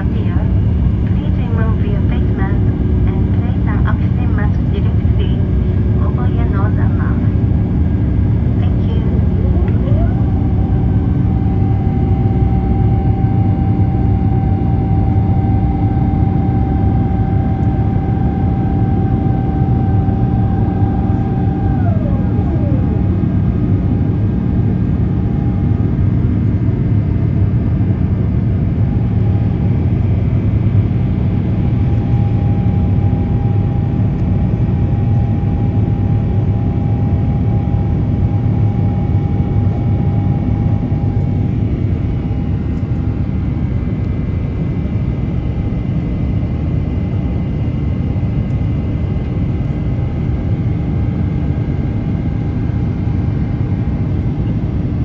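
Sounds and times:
steady whining tones: 0:00.0 - 0:43.8
jet engine roar in cabin: 0:00.0 - 0:55.0.

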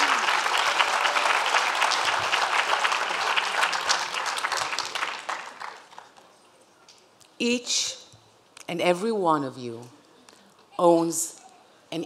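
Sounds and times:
large audience applauding: 0:00.0 - 0:06.3.

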